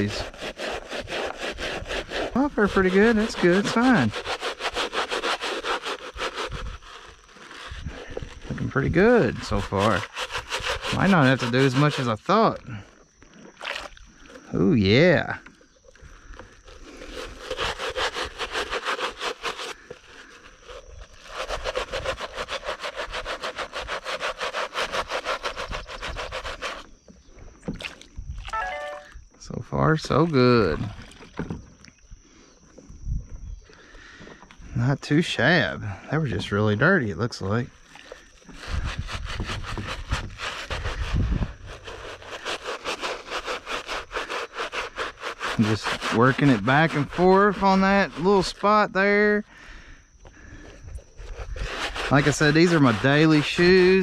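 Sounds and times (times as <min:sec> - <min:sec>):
brush scrubbing wet shoe: 0:00.0 - 0:12.9, 0:16.1 - 0:26.9, 0:37.8 - 0:49.4, 0:50.4 - 0:54.0.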